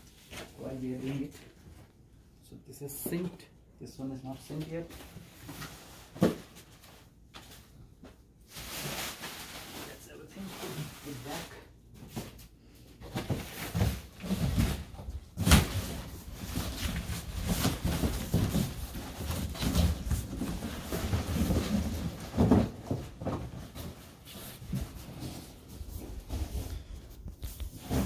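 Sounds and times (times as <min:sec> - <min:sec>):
boxed mattress knocks and thumps: 0:13.0 - 0:25.6.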